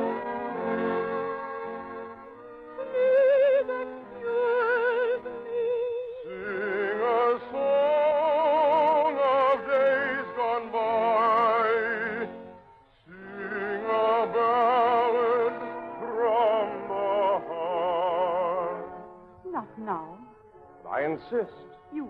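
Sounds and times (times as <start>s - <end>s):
operatic singing with vibrato: 2.8s - 12.3s, 13.1s - 18.8s.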